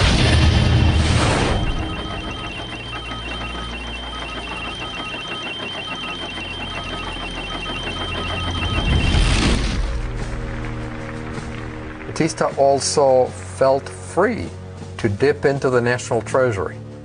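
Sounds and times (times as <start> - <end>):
low hum: 0.0 - 12.5
beeping: 0.9 - 9.9
steady high tone: 1.0 - 9.8.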